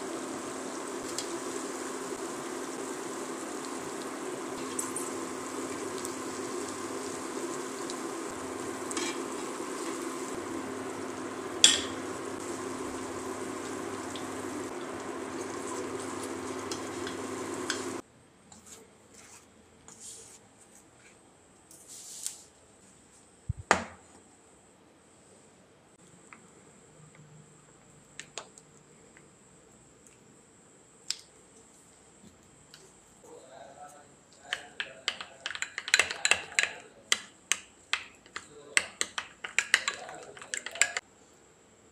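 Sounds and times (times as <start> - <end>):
oil sizzling in a pan: 0.0 - 18.0
metal spoon scraping a pan: 8.9 - 9.3
spoon knocking on metal pan: 11.6 - 12.0, 34.5 - 41.0
bowl and packet clicks: 37.5 - 41.0.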